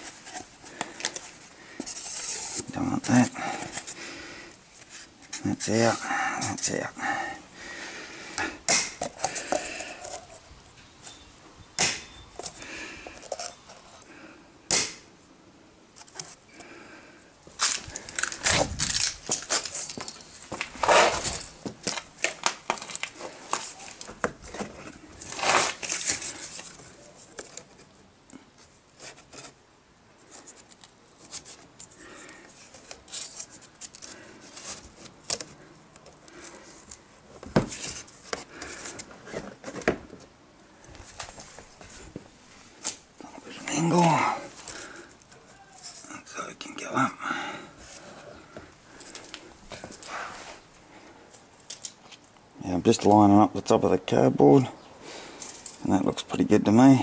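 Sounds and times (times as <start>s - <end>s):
cardboard rustling and scraping: 0.0s - 4.0s, 17.5s - 28.0s, 28.6s - 29.6s, 30.2s - 42.4s.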